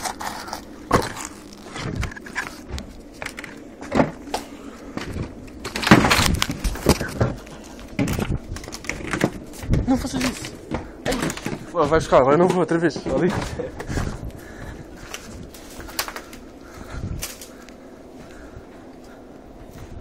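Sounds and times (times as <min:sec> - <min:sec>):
knocks and scrapes on rubble: 0:00.0 - 0:04.4, 0:05.0 - 0:14.2.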